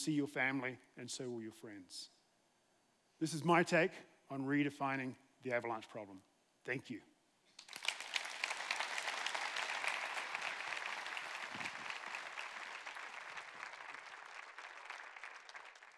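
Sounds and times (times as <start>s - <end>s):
audience applauding: 7.6s - 15.9s.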